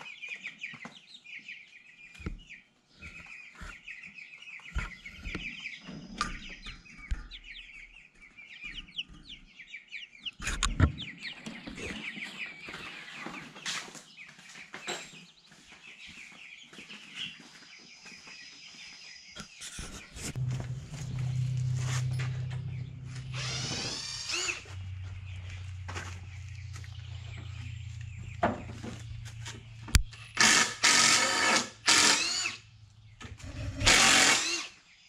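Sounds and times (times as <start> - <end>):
chicks peeping: 0.0 - 35.0
power tool running: 20.4 - 24.9, 30.1 - 34.8.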